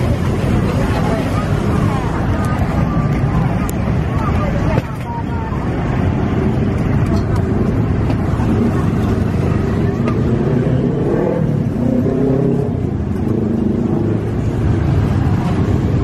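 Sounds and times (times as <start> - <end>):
steady low rumble: 0.0 - 10.9
indistinct voices: 0.0 - 16.0.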